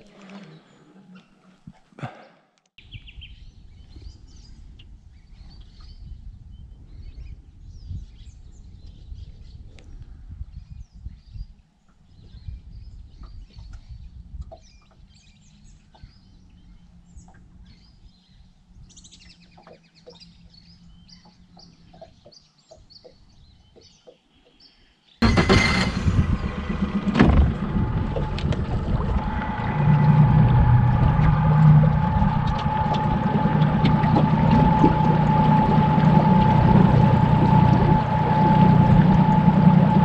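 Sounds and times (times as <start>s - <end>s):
outboard motor running: 25.2s - 40.0s
faint low hum: 25.3s - 40.0s
wind and water rushing: 25.3s - 40.0s
birds chirping: 27.5s - 40.0s.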